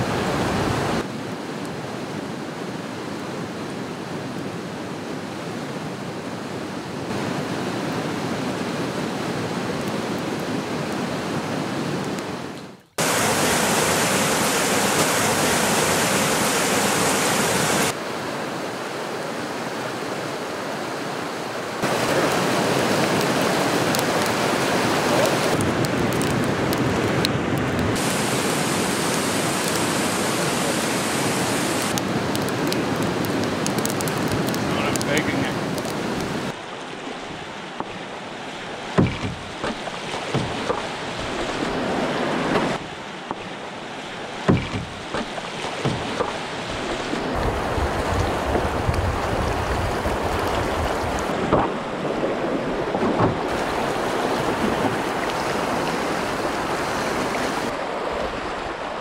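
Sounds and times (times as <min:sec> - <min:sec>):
river rapids rushing: 0:13.0 - 0:27.1, 0:28.0 - 0:59.0.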